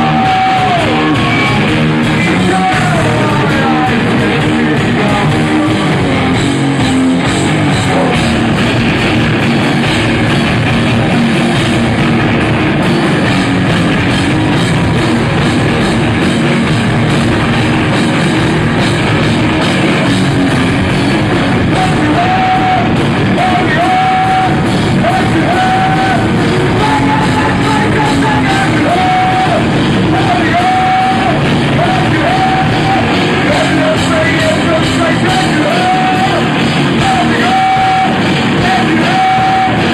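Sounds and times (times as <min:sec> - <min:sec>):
vocals: 0:00.0 - 0:08.6, 0:21.2 - 0:39.9
rock band playing live: 0:00.0 - 0:39.9.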